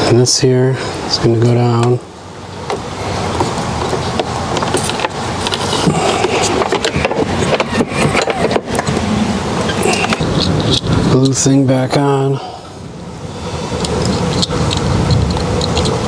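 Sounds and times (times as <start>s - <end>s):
rustling and scraping of parts: 1.4s - 11.5s, 13.6s - 16.0s.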